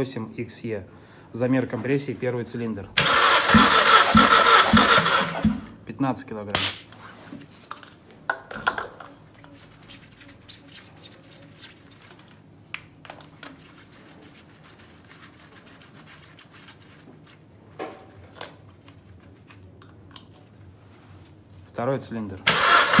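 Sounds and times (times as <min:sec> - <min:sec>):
faint steady hum: 0:00.0 - 0:01.6.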